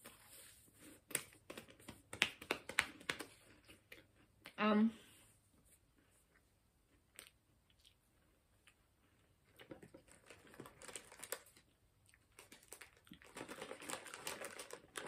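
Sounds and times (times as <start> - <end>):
plastic packet crinkling: 9.5 - 15.0.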